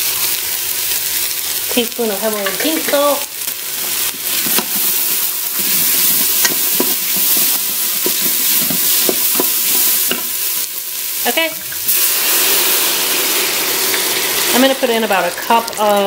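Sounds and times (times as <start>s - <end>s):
onion sizzling in pot: 0.0s - 16.0s
wooden spoon scraping pot: 3.9s - 10.4s.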